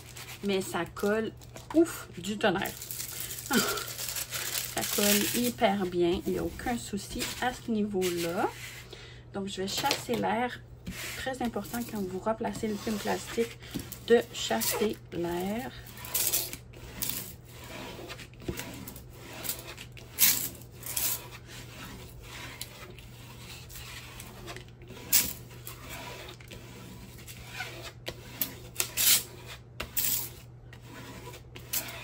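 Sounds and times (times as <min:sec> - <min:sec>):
plastic film rustling: 0:00.0 - 0:08.5
scraper strokes on film: 0:10.8 - 0:32.0.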